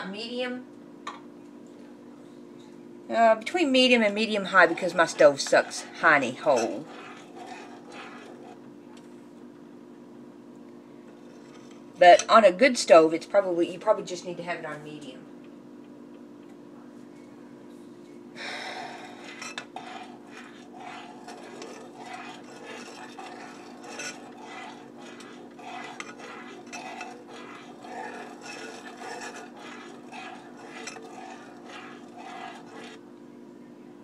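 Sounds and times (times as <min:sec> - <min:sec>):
steady low hum: 0:00.0 - 0:34.0
utensil scraping a pan: 0:03.4 - 0:08.6, 0:11.2 - 0:11.8, 0:18.6 - 0:33.1.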